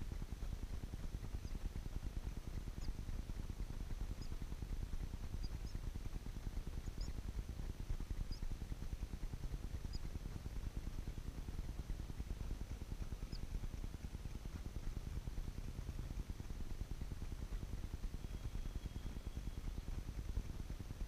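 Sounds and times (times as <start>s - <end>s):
nestlings peeping: 4.1s - 4.4s, 5.4s - 5.8s, 6.8s - 7.2s, 8.2s - 8.4s.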